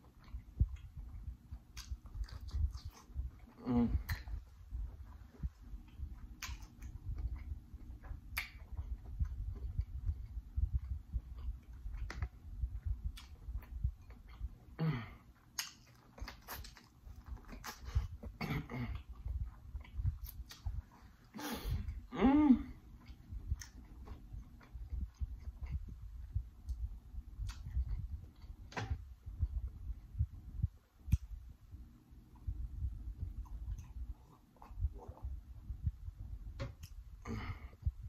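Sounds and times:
close chewing with lip-smacks: 0.0s - 22.1s, 22.7s - 38.0s
person humming: 3.6s - 4.3s, 21.4s - 22.9s.

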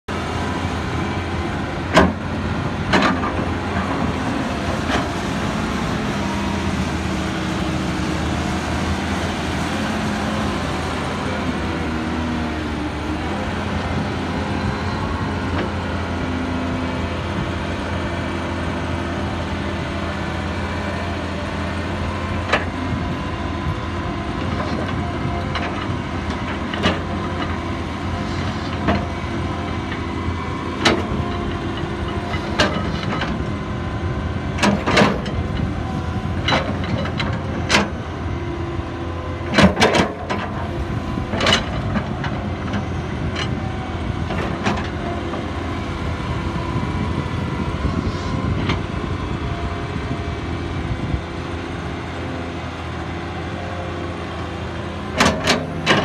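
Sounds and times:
excavator diesel engine running: 0.1s - 56.0s
excavator bucket knocking and clanking: 1.9s - 4.1s, 34.6s - 38.0s, 39.4s - 43.7s, 55.0s - 56.0s.

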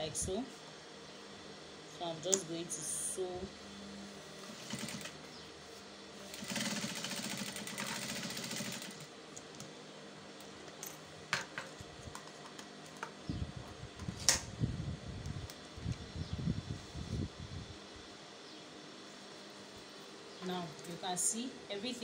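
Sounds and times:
sewing machine stitching: 4.4s - 5.2s, 6.3s - 9.1s.

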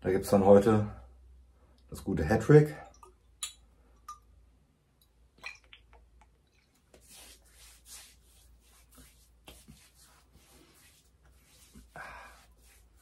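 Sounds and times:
hands patting face: 8.7s - 10.0s.

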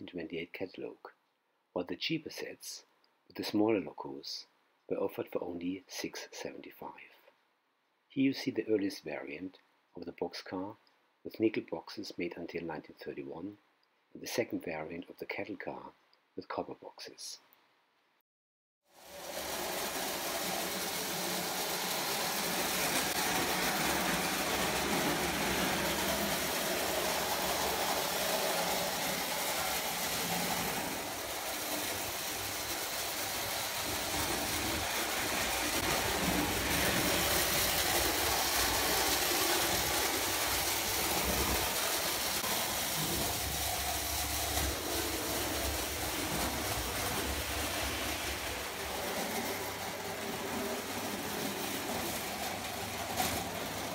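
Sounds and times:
toy train motor noise: 19.0s - 53.9s
toy train wheels clattering: 19.0s - 53.9s.

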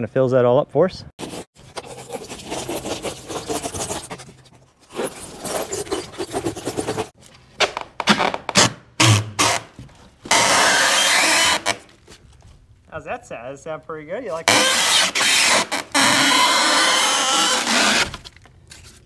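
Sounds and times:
hand saw rasping through foam: 1.2s - 7.2s, 10.3s - 11.8s, 14.4s - 18.2s
knocks and scuffs: 9.7s - 10.3s.

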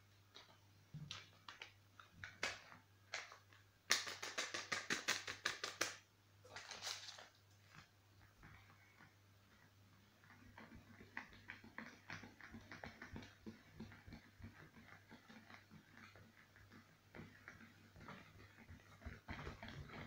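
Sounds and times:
paper sachet shaken and tapped: 1.1s - 7.9s.

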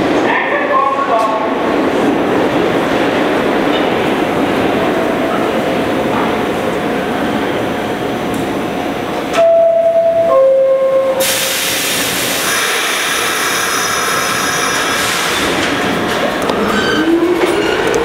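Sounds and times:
compressed air hiss: 11.2s - 15.3s.

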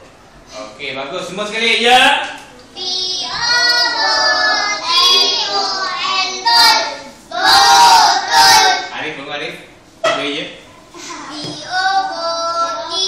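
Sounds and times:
children chanting in unison: 2.8s - 8.9s.

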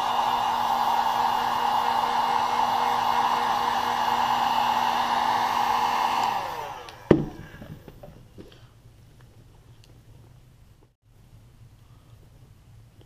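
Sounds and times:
heat gun blowing: 0.0s - 7.7s
fan spinning down: 0.0s - 7.9s.

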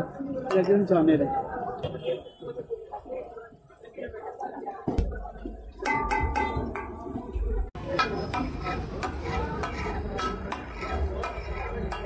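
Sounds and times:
metal spatulas clanging on griddle: 7.8s - 12.0s.

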